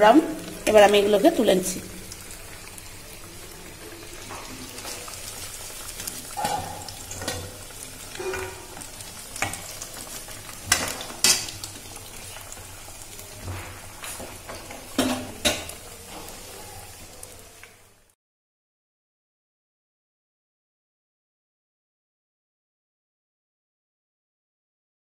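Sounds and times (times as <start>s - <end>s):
fritters sizzling in hot oil: 0.0s - 18.2s
spatula knocking and scraping pan: 10.6s - 11.6s.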